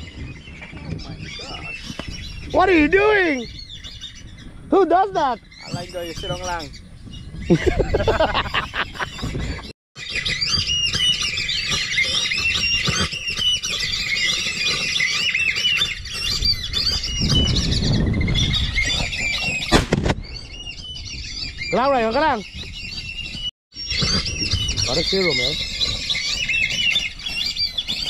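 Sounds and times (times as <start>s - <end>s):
ducks whistling: 0.0s - 28.0s
sharp bang: 19.7s - 20.2s.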